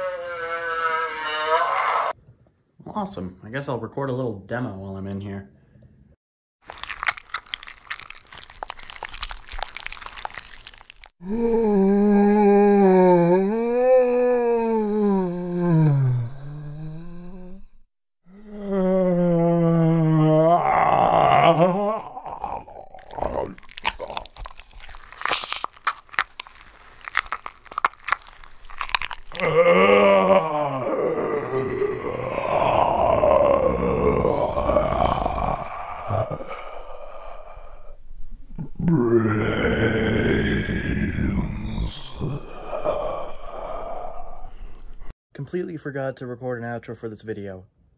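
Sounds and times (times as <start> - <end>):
low zombie groan: 0.0 - 2.2, 8.6 - 17.7, 18.3 - 25.2, 27.1 - 38.0, 38.6 - 45.1
crackling crunching sound effect: 6.6 - 11.2, 22.2 - 36.6.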